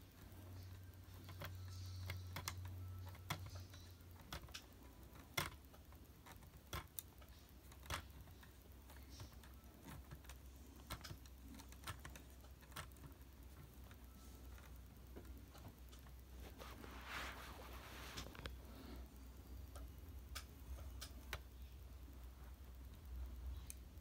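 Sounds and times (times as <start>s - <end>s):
plastic toy pieces clicking: 0.7s - 14.8s.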